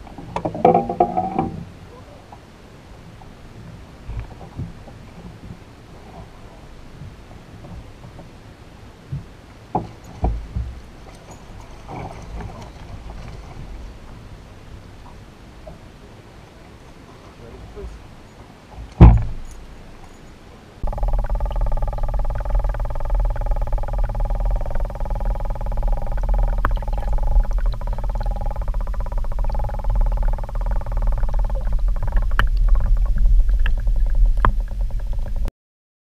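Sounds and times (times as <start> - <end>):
sharp thump: 19.0 - 19.4
faint clicks: 20.8 - 35.5
muffled underwater hum: 20.8 - 35.5
wavering whine: 20.8 - 35.5.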